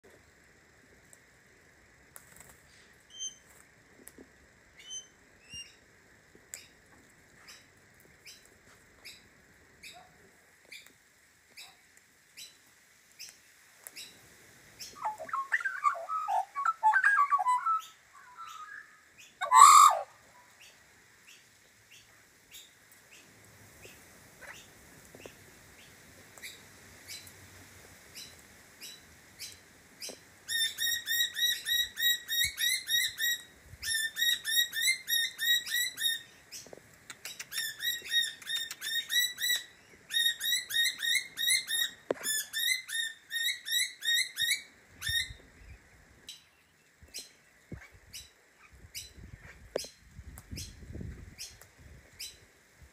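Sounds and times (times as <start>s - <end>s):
magpie warbling: 15.0s - 18.8s, 19.4s - 20.1s
harsh bird squawk: 15.0s - 20.2s.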